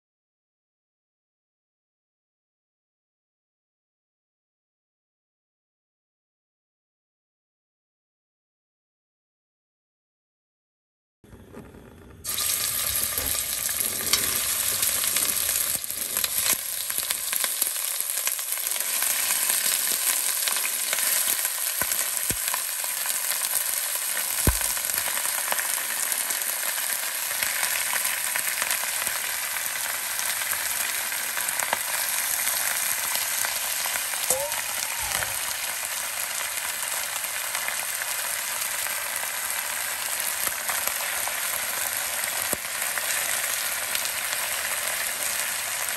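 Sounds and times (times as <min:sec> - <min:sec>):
meat sizzling in hot oil: 0:12.2 - 0:45.9.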